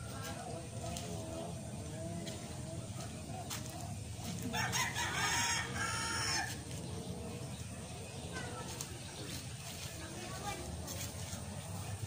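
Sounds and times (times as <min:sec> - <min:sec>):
rooster crowing: 0:04.5 - 0:06.6.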